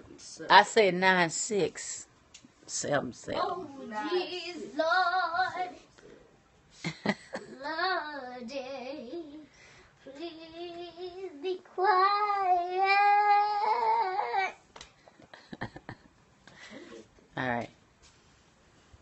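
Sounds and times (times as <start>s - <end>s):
girl singing in a high voice: 3.5s - 5.8s, 7.4s - 14.6s.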